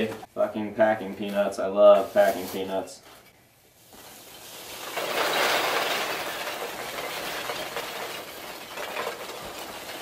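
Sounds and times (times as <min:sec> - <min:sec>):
packing peanuts rustling: 0:04.3 - 0:10.0.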